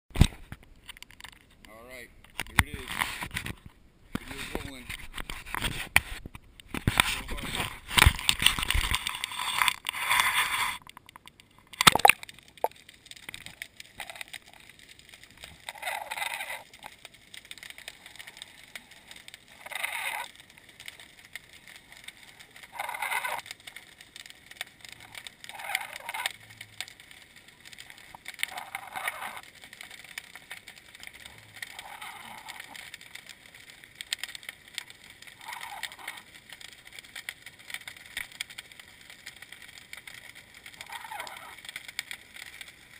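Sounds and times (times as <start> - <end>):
camera splashing into water: 11.7 - 12.3.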